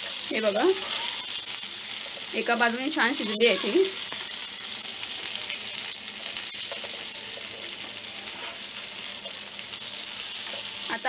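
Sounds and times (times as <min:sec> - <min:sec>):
metal spatula scraping: 0:00.0 - 0:02.4, 0:03.0 - 0:05.0
fish sizzling in hot oil: 0:00.0 - 0:11.0.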